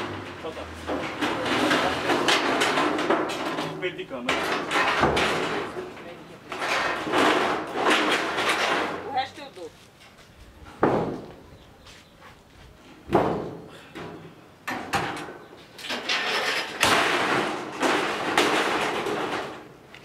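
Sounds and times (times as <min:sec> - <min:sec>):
scrap iron banging on metal: 0:00.0 - 0:09.1, 0:13.3 - 0:19.7
metal scraping and clanking: 0:00.0 - 0:09.4, 0:14.0 - 0:19.8.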